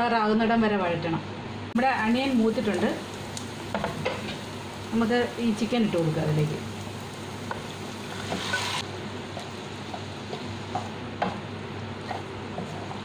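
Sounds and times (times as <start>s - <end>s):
chicken sizzling in pan: 1.8s - 11.1s.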